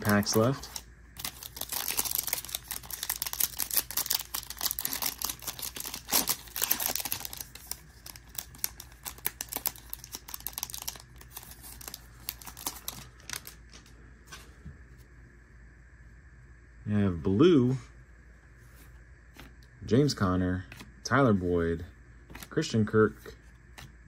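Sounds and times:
foil wrapper tearing and crackling: 0.0 - 13.6.

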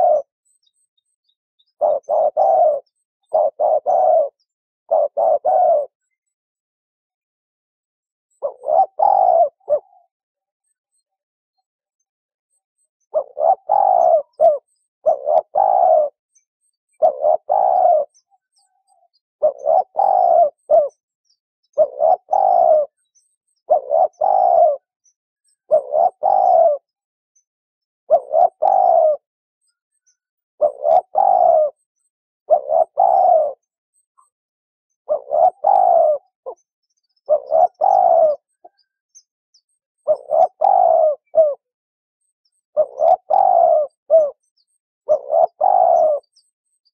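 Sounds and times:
dove cooing: 0.0 - 0.6, 1.6 - 6.1, 8.3 - 10.1, 13.0 - 16.2, 16.9 - 21.0, 21.7 - 23.0, 23.6 - 24.9, 25.6 - 26.9, 28.1 - 29.3, 30.6 - 31.9, 32.5 - 33.8, 35.1 - 36.6, 37.2 - 38.9, 40.0 - 41.7, 42.7 - 46.9.

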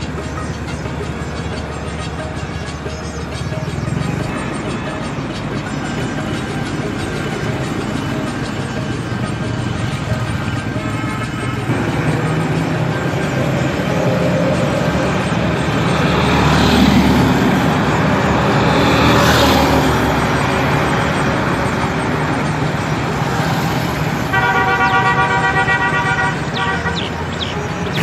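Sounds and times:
road traffic passing: 0.0 - 28.0
vehicle horn: 24.2 - 27.2.

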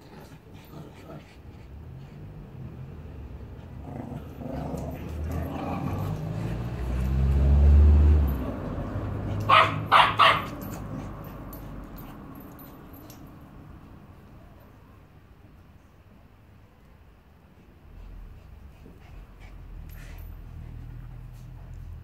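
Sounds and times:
dogs growling: 0.0 - 2.6, 3.4 - 13.2
dog barking: 9.4 - 10.8.

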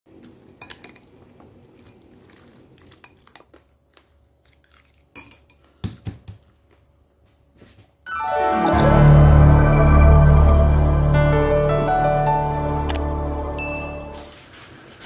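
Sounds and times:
utensils clinking against bowl: 5.1 - 5.7.

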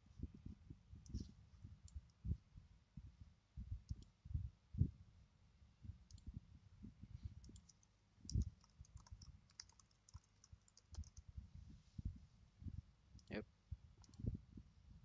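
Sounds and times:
mouse clicks: 6.1 - 6.3, 7.4 - 11.2, 14.0 - 14.2
keyboard typing: 7.4 - 11.2.

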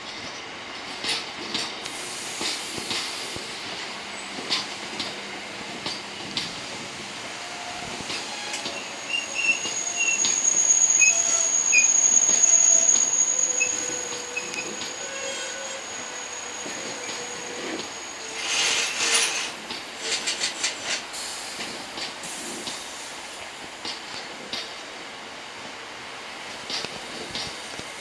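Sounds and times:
train wheels clicking over rail joints: 0.1 - 6.9, 7.7 - 15.4, 16.5 - 23.0, 23.6 - 24.8, 26.5 - 28.0
high-pitched wheel squeal: 7.6 - 19.5.

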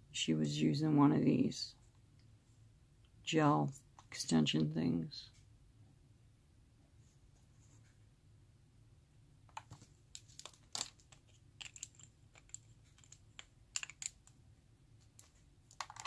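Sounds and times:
plastic items clicking: 9.5 - 14.4, 15.0 - 16.0.

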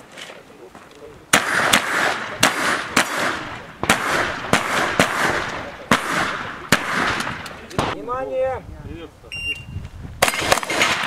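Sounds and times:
shotgun shots with echo: 1.3 - 8.0, 10.2 - 11.0.

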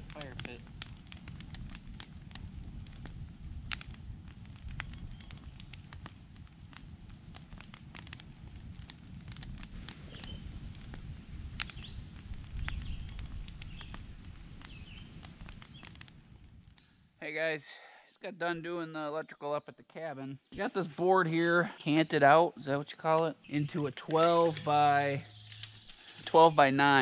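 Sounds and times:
cricket chirping: 0.1 - 17.2, 20.5 - 27.0
sharp clicks: 25.4 - 26.3.

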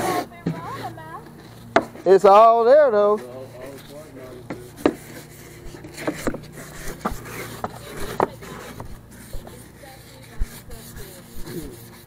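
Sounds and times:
cloth wiping fiberglass hull: 0.0 - 12.0
steady low hum: 0.0 - 12.0
short scrapes and soft knocks: 3.2 - 12.0.

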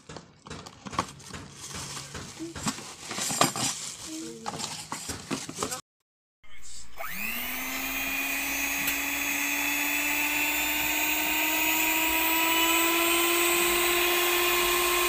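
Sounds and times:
hand mixer motor whining: 6.8 - 15.0.

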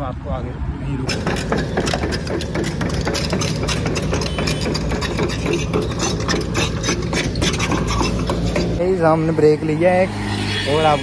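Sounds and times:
engine running with rattle: 1.1 - 8.8.

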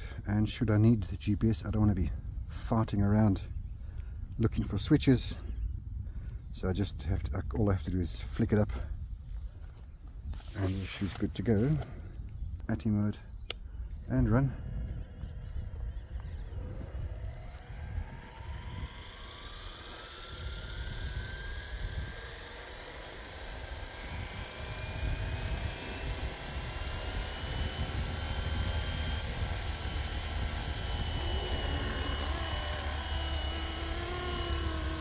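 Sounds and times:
rc helicopter motor whine: 13.5 - 35.0
helicopter rotor whirr: 13.7 - 35.0.

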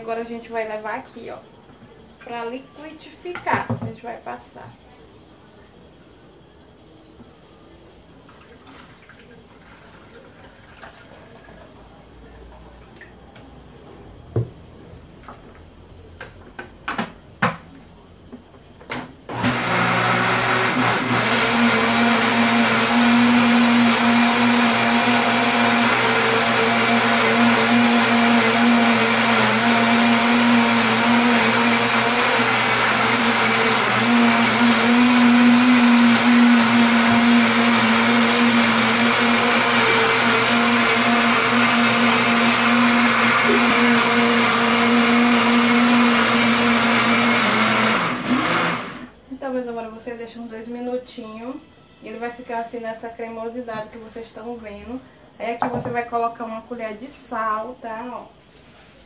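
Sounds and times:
electric blender running: 19.3 - 49.1.

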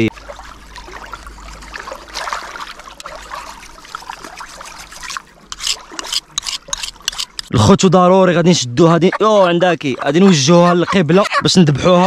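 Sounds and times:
water trickling and splashing: 0.0 - 7.5
knife scraping on sharpening stone: 5.5 - 7.5.

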